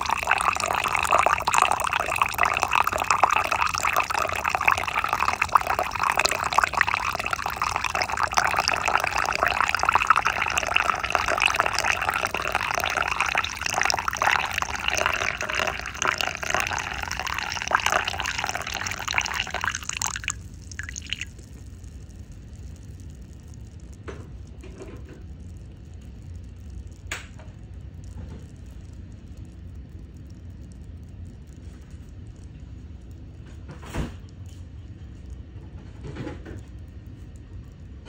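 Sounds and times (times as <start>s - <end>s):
coffee pouring into a cup: 0.0s - 21.5s.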